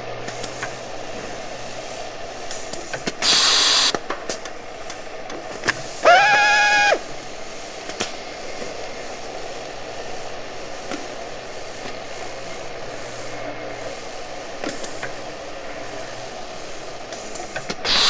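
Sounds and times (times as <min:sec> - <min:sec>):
low steady machine noise: 0:00.0 - 0:18.0
electric drill whine: 0:03.2 - 0:04.0, 0:06.0 - 0:07.1.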